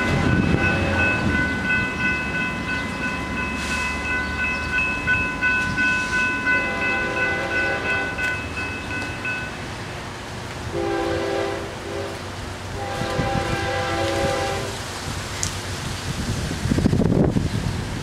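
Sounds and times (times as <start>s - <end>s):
crossing warning bell ringing: 0.0s - 10.0s.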